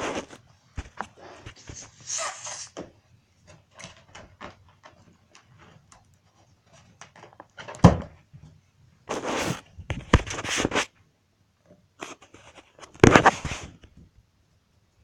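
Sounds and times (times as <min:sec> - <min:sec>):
rustling: 0:09.0 - 0:11.0.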